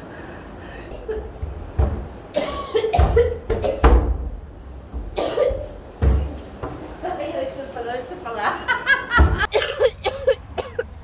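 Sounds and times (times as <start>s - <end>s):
woman coughing: 2.3s - 3.9s, 5.2s - 5.7s, 9.4s - 10.9s.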